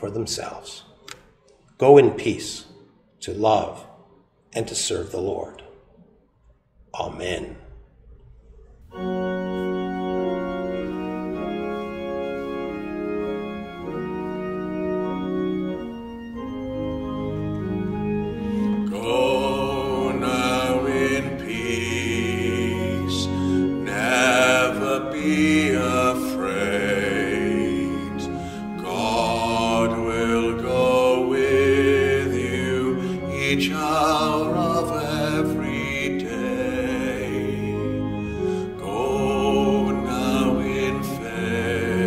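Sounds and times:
organ playing sustained chords: 8.8s - 42.0s
voices singing: 18.6s - 42.0s.

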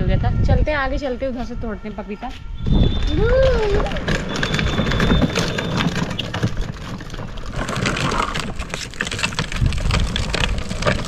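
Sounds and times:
plastic wheels rolling on concrete: 2.6s - 11.0s.

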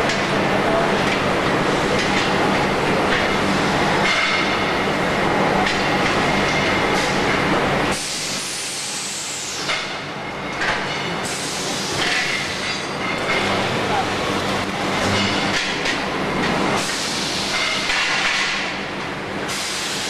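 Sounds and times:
machinery hum and clatter: 0.0s - 20.0s
pneumatic air hiss: 7.9s - 9.8s, 16.8s - 17.9s, 19.5s - 20.0s.

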